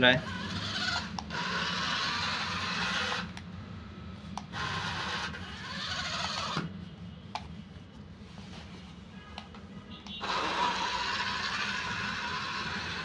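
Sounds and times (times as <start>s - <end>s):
toy car motor whirring: 0.1s - 3.4s, 4.5s - 6.6s, 10.2s - 13.0s.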